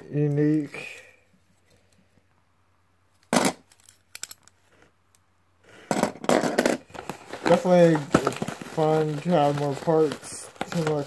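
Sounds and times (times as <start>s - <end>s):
plastic parts clicking and clattering: 3.2s - 4.6s.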